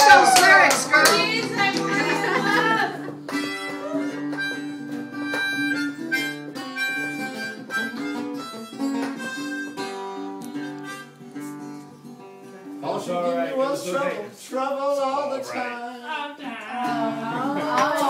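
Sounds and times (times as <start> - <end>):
strummed acoustic guitar: 0.1 - 15.9, 16.7 - 18.0
harmonica melody: 0.9 - 13.7.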